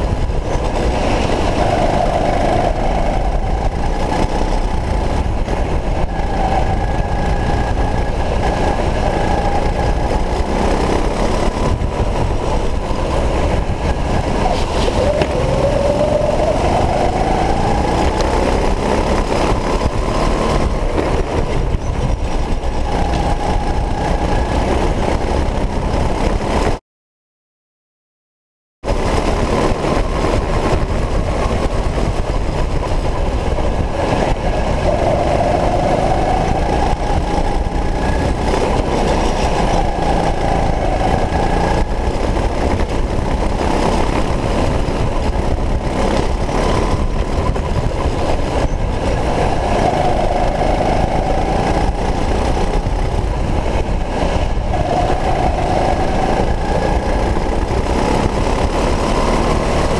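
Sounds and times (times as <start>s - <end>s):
go-kart engine accelerating: 0.0s - 26.8s, 28.9s - 59.9s
low rumble: 29.2s - 59.9s.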